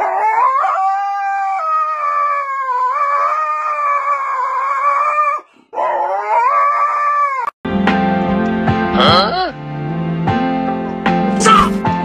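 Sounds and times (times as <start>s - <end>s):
husky howling: 0.0s - 7.5s.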